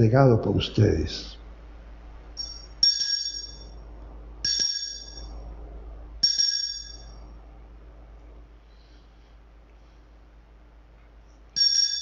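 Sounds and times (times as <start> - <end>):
small bell ringing: 2.4 - 3.8, 4.4 - 5.3, 6.2 - 7.2, 11.6 - 12.0.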